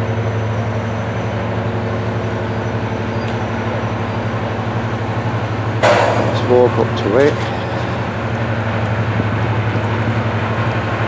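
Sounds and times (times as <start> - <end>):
diesel locomotive engine drone: 0.0 - 11.0.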